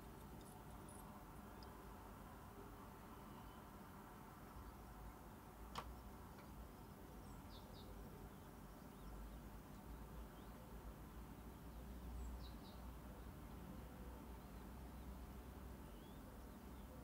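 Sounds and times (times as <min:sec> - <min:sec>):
faint click: 0:05.7 - 0:06.6.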